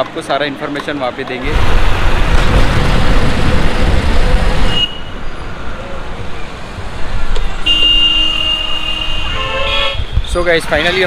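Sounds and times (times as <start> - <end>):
scooter engine and road noise: 0.0 - 11.0
street background: 0.0 - 11.0
wind rush: 1.4 - 7.3, 9.3 - 10.7.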